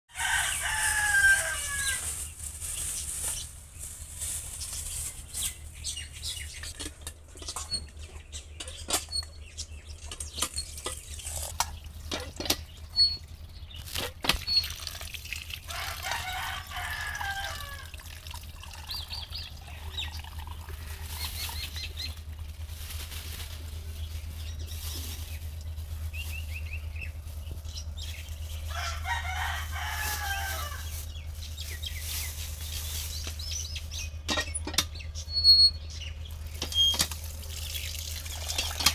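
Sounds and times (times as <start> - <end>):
chickens calling: 0.1 - 38.9
plastic bags crinkling: 0.2 - 6.9, 20.7 - 34.0.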